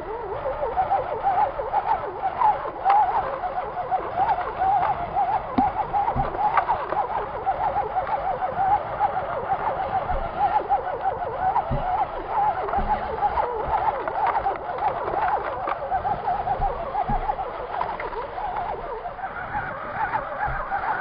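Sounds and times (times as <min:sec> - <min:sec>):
electric motor and gearbox whine: 0:00.0 - 0:21.0
short knocks: 0:05.5 - 0:07.1, 0:11.5 - 0:21.0.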